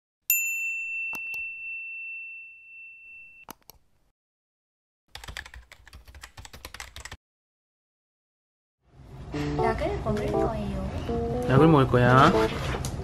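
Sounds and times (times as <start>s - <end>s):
notification bell ding: 0.3s - 3.4s
keyboard typing: 5.1s - 7.2s.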